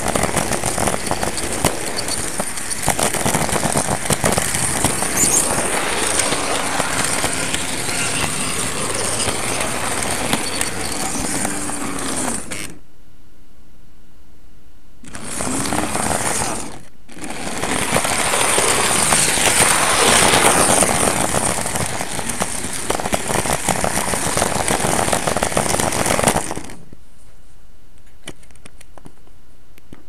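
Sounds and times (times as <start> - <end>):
model train rattling on track: 0.0 - 12.3, 17.2 - 26.8.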